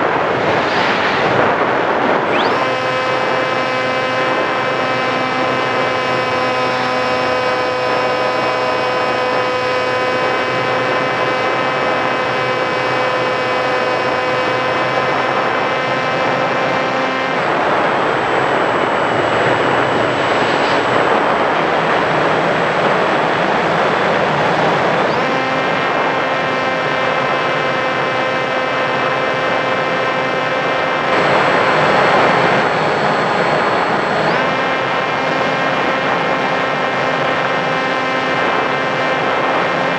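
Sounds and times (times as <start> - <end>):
rush of air: 0.0 - 2.5, 17.5 - 23.3
electric motor and propeller whine: 0.0 - 39.9.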